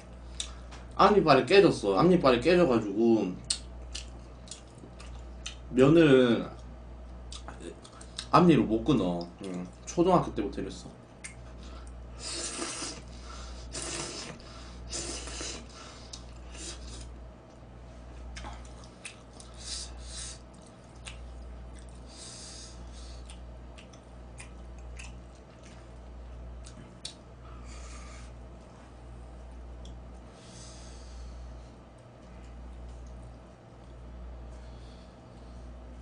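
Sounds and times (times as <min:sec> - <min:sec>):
steady low hum: 0:00.0 - 0:36.0
person chewing: 0:03.4 - 0:05.6, 0:07.2 - 0:08.3, 0:11.2 - 0:17.2, 0:18.2 - 0:27.2
person slurping noodles: 0:12.2 - 0:15.7.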